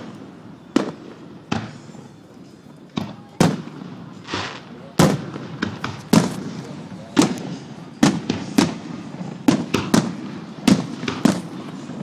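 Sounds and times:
firework shells bursting: 2.9 - 12.0.

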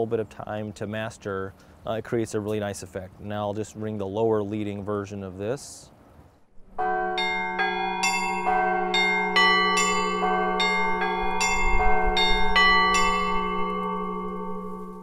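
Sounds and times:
steady low tone: 6.4 - 15.0
church bells ringing: 6.6 - 15.0.

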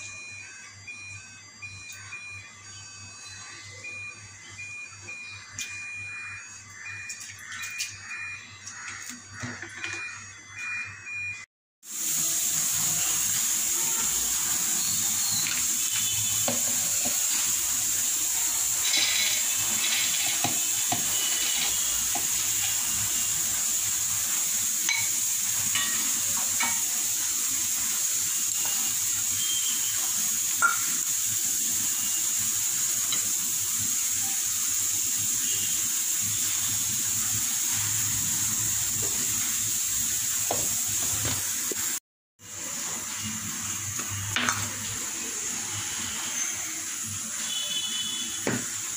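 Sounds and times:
lentils clinking into steel jar: 18.8 - 20.4.

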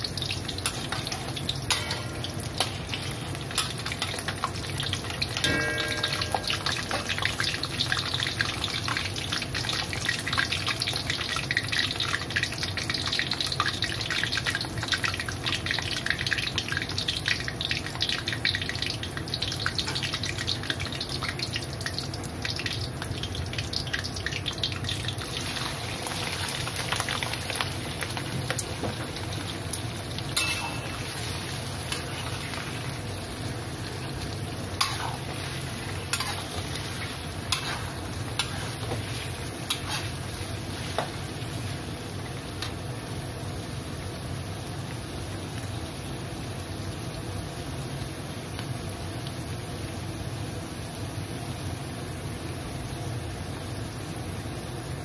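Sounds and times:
oil crackling and sizzling in a wok: 0.0 - 55.0
metal spatula knocking on wok: 1.7 - 2.8, 5.4 - 7.2, 30.4 - 31.0.

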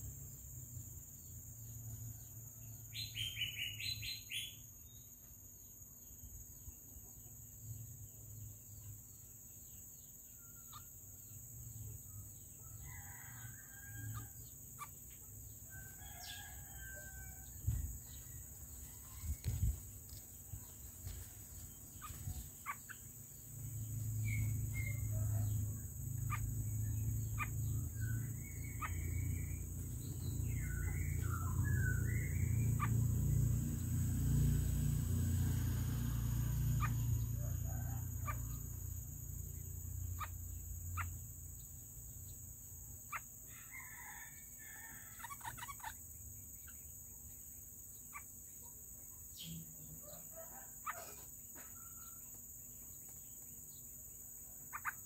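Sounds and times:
birds chirping: 12.1 - 35.2, 36.5 - 55.0.

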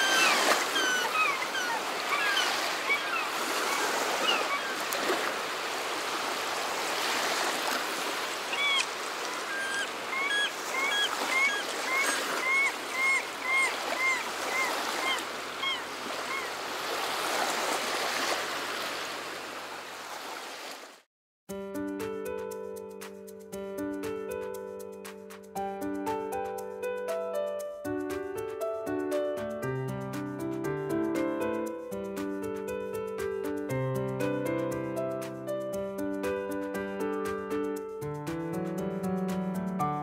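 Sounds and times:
bird chirping calls: 0.0 - 5.0, 8.4 - 16.6
ocean surf on beach: 0.0 - 21.0
music: 21.5 - 40.0.

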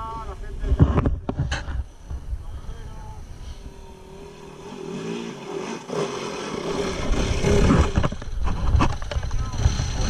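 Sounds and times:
dirt bike engine running: 3.7 - 10.0.

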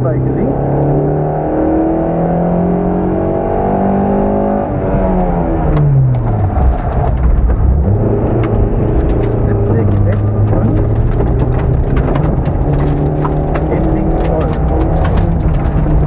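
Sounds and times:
car engine at full throttle: 0.0 - 16.0
gravel crunching under tyres: 4.5 - 16.0
stones hitting car underside: 5.7 - 16.0.

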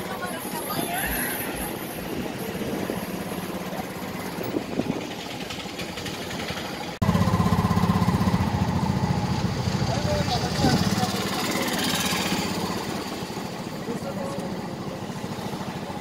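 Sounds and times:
people's voices: 0.0 - 4.7, 9.8 - 16.0
passing traffic: 0.0 - 16.0
small engine fast-pulsing: 3.5 - 16.0.

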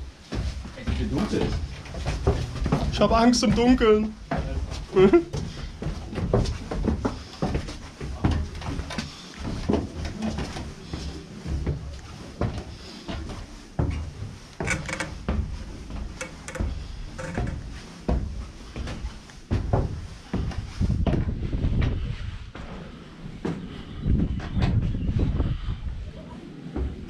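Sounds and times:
footsteps climbing stairs: 0.0 - 25.0.

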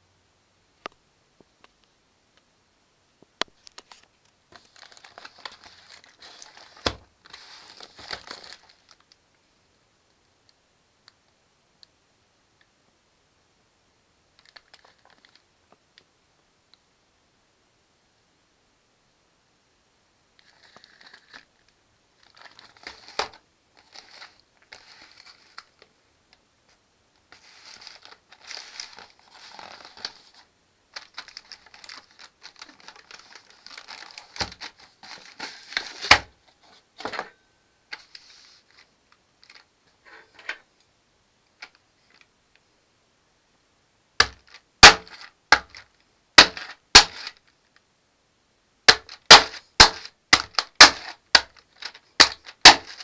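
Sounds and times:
cardboard and plastic film crinkling: 3.6 - 9.2, 14.4 - 15.4, 20.4 - 25.9, 27.3 - 37.2, 44.2 - 47.5, 48.9 - 53.0
fork pricking plastic film: 31.0 - 36.2, 46.4 - 47.4, 48.9 - 53.0.

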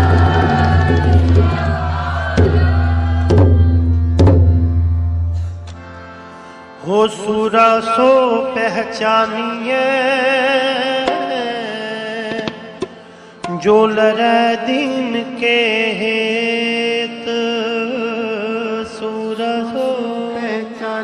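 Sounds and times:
tabla strokes: 0.0 - 5.6.

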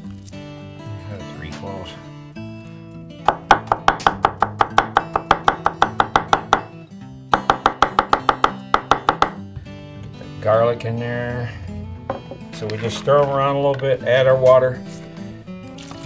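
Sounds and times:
knife chopping on wooden board: 3.3 - 6.7, 7.3 - 9.4.

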